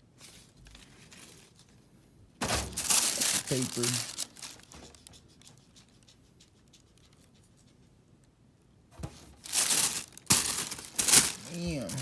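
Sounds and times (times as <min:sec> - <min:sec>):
loud paper rustling: 0:02.4 - 0:05.2, 0:09.4 - 0:12.0
tissue paper crinkling: 0:02.7 - 0:05.2, 0:09.4 - 0:12.0.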